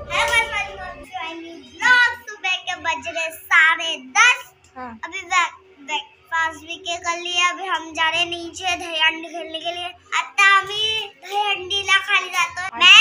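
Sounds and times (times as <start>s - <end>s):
girl singing: 0.0s - 3.0s.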